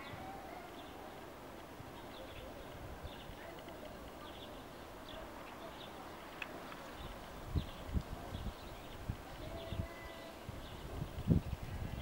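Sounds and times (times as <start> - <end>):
low outdoor background noise: 0.0 - 12.0
faint bird chirps: 1.9 - 6.1, 6.8 - 12.0.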